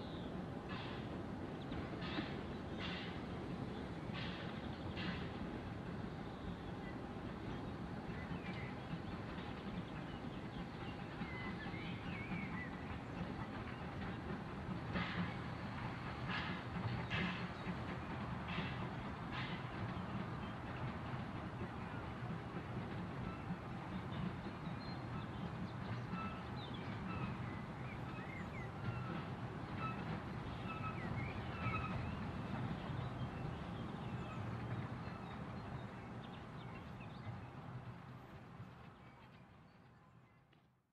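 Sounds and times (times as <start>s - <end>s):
distant steam train rumble: 0.0s - 40.5s
birds chirping: 23.2s - 37.8s.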